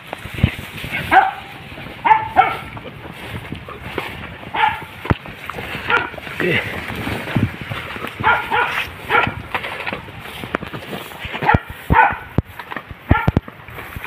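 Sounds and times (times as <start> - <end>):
knocks and rustling in brush: 0.0 - 14.0
dogs barking: 0.9 - 6.6, 8.0 - 9.8, 11.3 - 12.4, 13.0 - 13.4.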